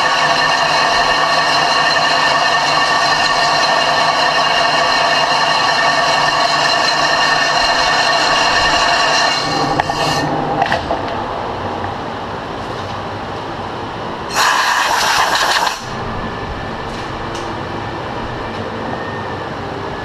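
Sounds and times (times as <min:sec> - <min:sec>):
lathe spindle running down: 0:00.0 - 0:12.0
loud harsh rushing noise: 0:00.0 - 0:18.8
steady machine hum: 0:00.0 - 0:20.0.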